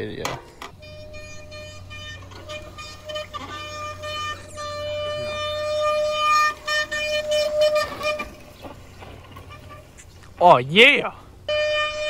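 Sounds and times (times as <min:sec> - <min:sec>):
bike brakes squealing: 0:00.7 - 0:10.5, 0:11.4 - 0:12.0.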